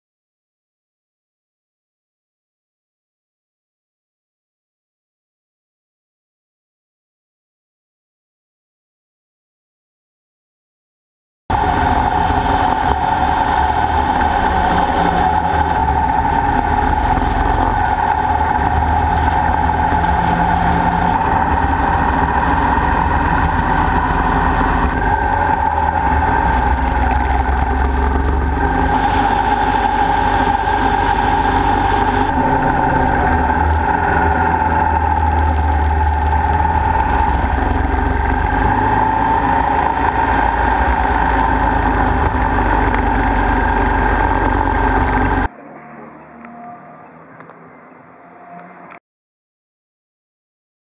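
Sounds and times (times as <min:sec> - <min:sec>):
road and wind rush: 0:11.5 - 0:45.5
motorcycle engine droning: 0:11.5 - 0:48.8.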